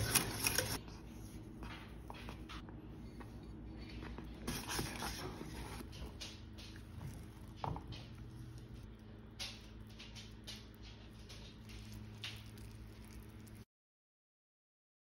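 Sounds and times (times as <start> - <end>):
whisk stirring grits in saucepan: 0.0 - 0.8, 4.4 - 8.8
steady low hum: 0.0 - 13.6.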